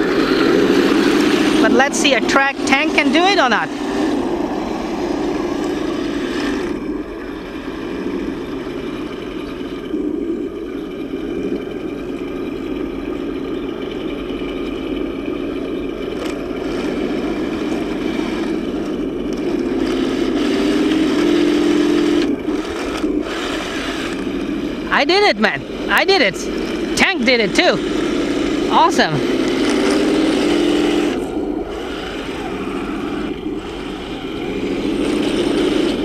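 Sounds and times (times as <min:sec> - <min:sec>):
simulated tank engine drone: 0:00.0 - 0:36.0.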